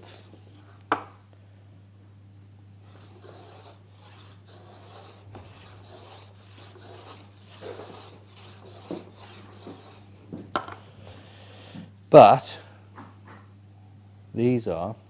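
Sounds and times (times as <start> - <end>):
block plane shaving wood: 2.8 - 10.1.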